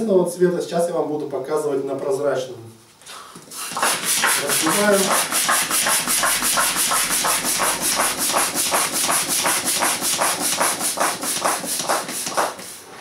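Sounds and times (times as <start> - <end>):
hand pump hissing air: 3.3 - 13.0.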